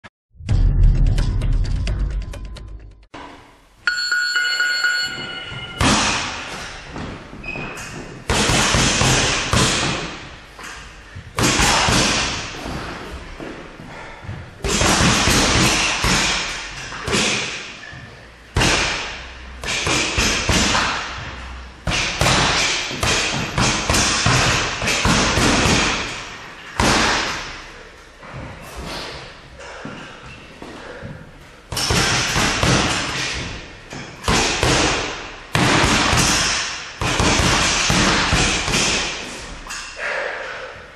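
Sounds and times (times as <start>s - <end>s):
timer ringing tone: 3.8s - 5.8s
boxing gloves punching ball: 5.8s - 7.1s, 8.0s - 10.2s, 11.4s - 13.0s, 14.6s - 17.6s, 18.5s - 27.6s, 31.7s - 39.3s.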